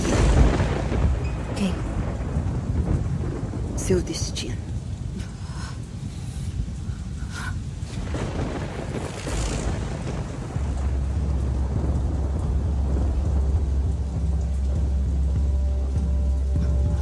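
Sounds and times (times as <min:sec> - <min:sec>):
deep rumbling drone: 0:04.7 - 0:17.0.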